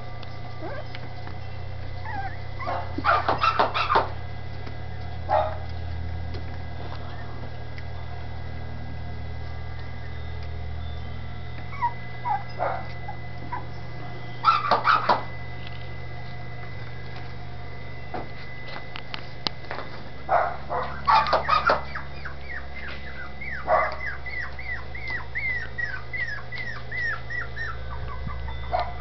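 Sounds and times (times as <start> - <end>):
steady low hum: 0.0 - 29.0
puppies whimpering and yipping: 0.4 - 4.1, 11.5 - 15.2, 20.7 - 29.0.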